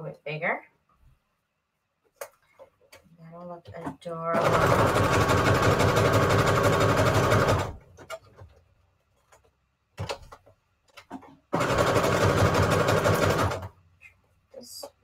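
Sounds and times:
sewing machine stitching: 0:04.4 - 0:08.2, 0:11.5 - 0:13.8.

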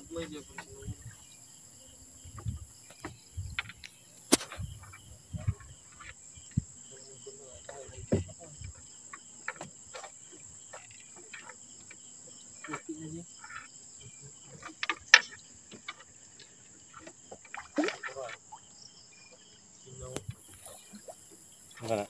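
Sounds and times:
night insects chirring: 0:00.0 - 0:22.0
fishing net rustling and knocking: 0:02.4 - 0:06.7, 0:14.4 - 0:18.6.

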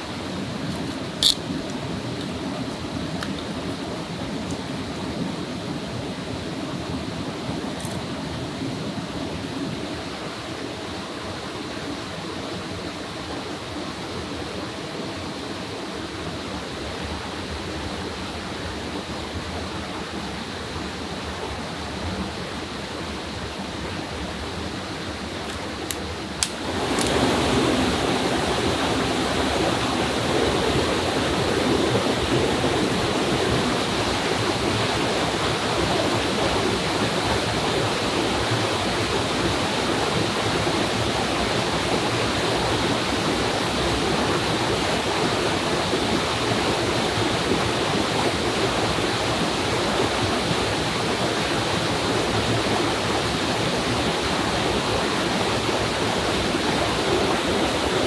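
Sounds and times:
waterfall splashing into pool: 0:25.1 - 0:58.0.

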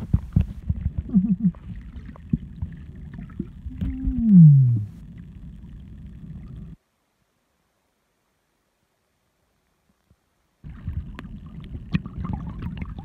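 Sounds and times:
scattered underwater clicks: 0:00.0 - 0:06.8
underwater low rumble: 0:00.0 - 0:06.8, 0:10.6 - 0:13.0.

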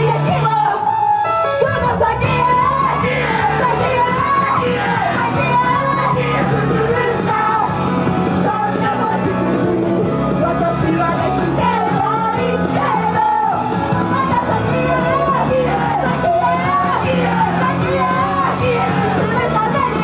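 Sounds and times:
rock-pop backing music: 0:00.0 - 0:20.0
women singing into microphones: 0:01.6 - 0:07.8, 0:08.4 - 0:09.8, 0:10.4 - 0:20.0
people yelling: 0:02.3 - 0:07.6.

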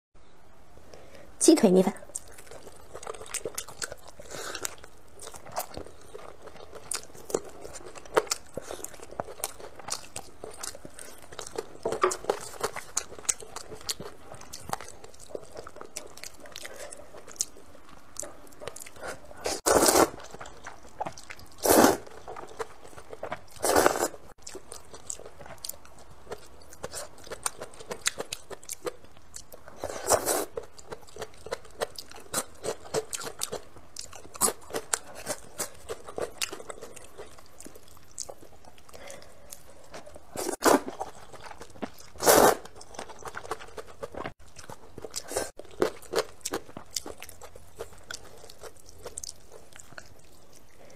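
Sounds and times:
person chewing: 0:02.1 - 0:50.9
slurping noodles: 0:19.4 - 0:20.2, 0:21.6 - 0:22.1, 0:23.6 - 0:24.2, 0:42.2 - 0:42.7.

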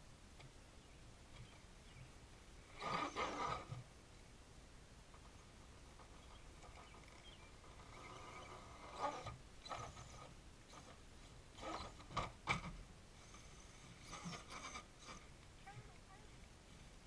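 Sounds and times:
toy car motor whining: 0:02.7 - 0:03.8, 0:06.9 - 0:11.0, 0:11.6 - 0:12.2, 0:13.2 - 0:15.3.

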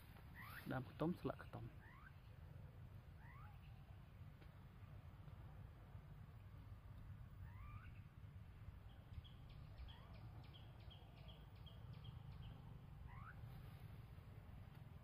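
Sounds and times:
birds calling: 0:00.0 - 0:15.0.

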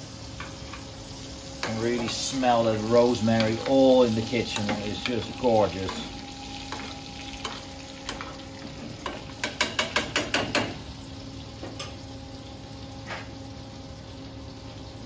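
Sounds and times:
steak sizzling in butter: 0:00.0 - 0:10.0.

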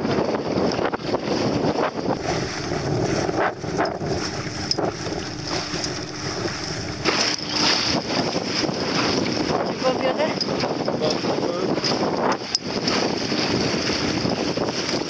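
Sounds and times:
water rushing along hull: 0:00.0 - 0:15.0
wind buffeting microphone: 0:00.0 - 0:15.0
water slapping against bow: 0:01.8 - 0:11.2.

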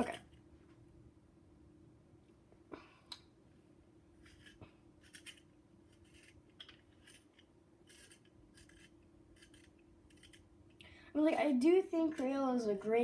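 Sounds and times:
faint steady hum: 0:00.0 - 0:13.0
colored pencil scratching: 0:04.2 - 0:10.4.

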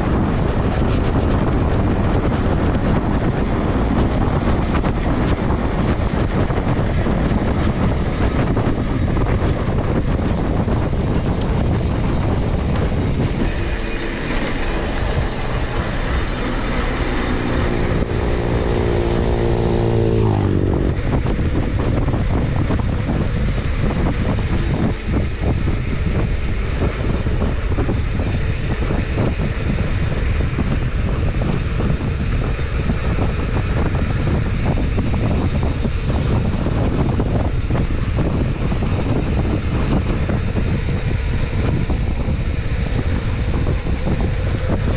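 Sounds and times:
droning engine-like tone: 0:00.0 - 0:44.9
wind on microphone: 0:00.0 - 0:44.9.

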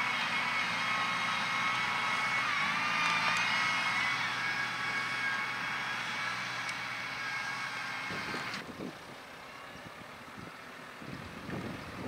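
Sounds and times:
steady whine: 0:00.0 - 0:08.8
tractor diesel engine running: 0:00.0 - 0:12.0.

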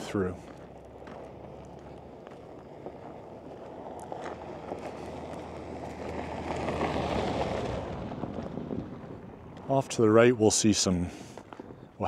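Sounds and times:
footsteps on gravel: 0:00.0 - 0:06.9, 0:10.8 - 0:12.0
wind on microphone: 0:07.3 - 0:09.7.

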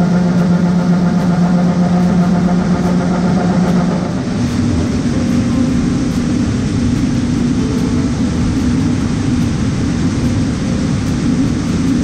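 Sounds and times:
combine harvester low drone: 0:00.0 - 0:12.0.

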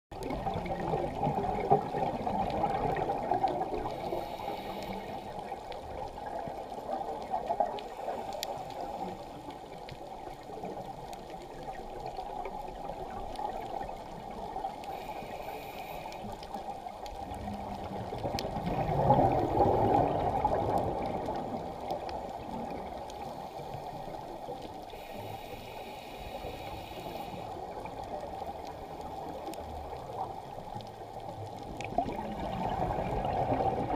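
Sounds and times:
rush of water underwater: 0:00.1 - 0:33.9
scuba exhalation bubbling: 0:18.2 - 0:21.8, 0:31.7 - 0:33.9.

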